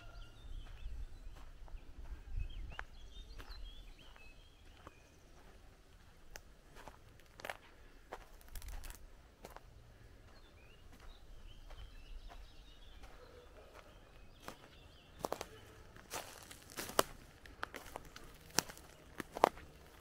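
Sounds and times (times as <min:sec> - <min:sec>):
faint bird chirps: 0:00.0 - 0:05.7, 0:10.3 - 0:16.6
footsteps walking: 0:00.5 - 0:20.0.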